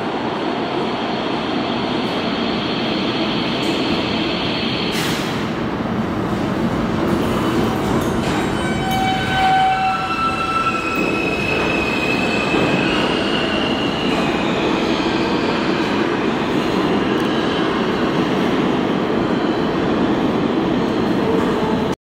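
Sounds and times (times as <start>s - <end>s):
subway train wheels on rail: 0.0s - 22.0s
high wheel squeal: 8.4s - 15.2s.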